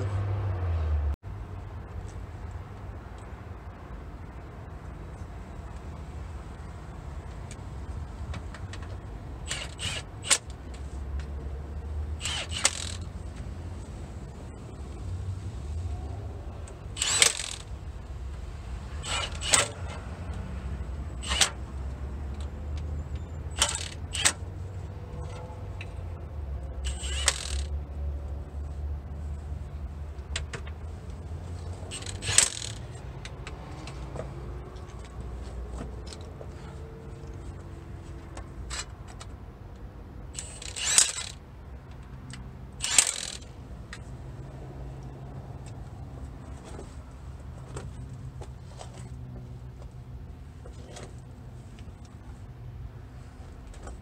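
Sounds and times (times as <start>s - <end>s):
metallic clatters of bolts: 12.2s - 13.1s, 17.0s - 17.7s, 19.0s - 20.0s, 23.5s - 24.4s, 26.8s - 27.7s, 31.9s - 33.0s, 40.4s - 41.4s, 42.8s - 43.5s.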